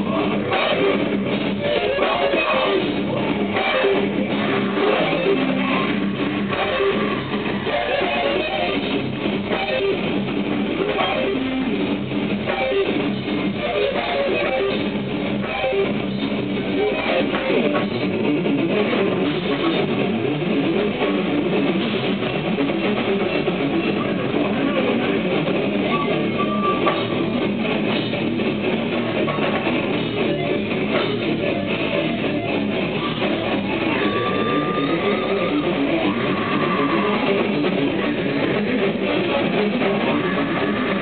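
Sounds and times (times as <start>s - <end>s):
live metal band playing: 0.0s - 41.0s.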